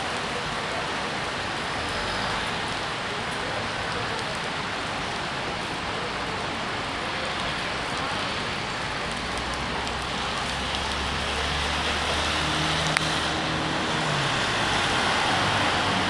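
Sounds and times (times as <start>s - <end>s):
rain hissing on wet pavement: 0.0s - 16.0s
traffic on wet street: 0.0s - 16.0s
bus engine humming: 9.0s - 16.0s.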